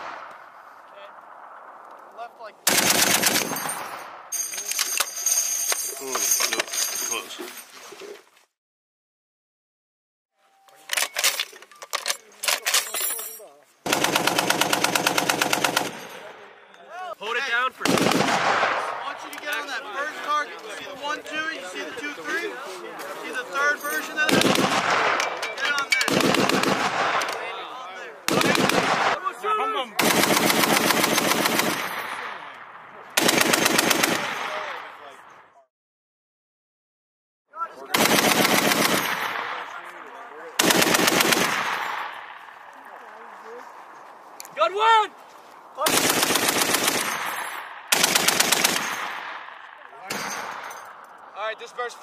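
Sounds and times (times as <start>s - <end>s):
machine gun firing bursts: 2.6s - 4.0s, 13.8s - 16.1s, 17.8s - 18.8s, 24.3s - 25.2s, 26.1s - 27.2s, 28.3s - 29.2s, 30.0s - 32.0s, 33.2s - 34.5s, 37.9s - 39.4s, 40.6s - 42.0s, 45.8s - 49.3s
heavy machine gun fire: 2.7s - 4.0s, 17.8s - 19.0s, 24.3s - 25.2s, 26.1s - 27.2s, 28.3s - 29.2s, 47.9s - 49.4s.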